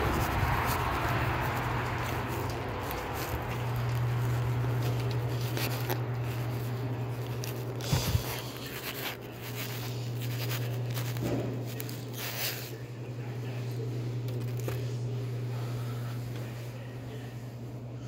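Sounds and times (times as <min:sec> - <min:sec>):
footsteps: 0:00.0 - 0:12.6
handling scrapes: 0:00.0 - 0:17.6
low steady hum: 0:00.0 - 0:18.0.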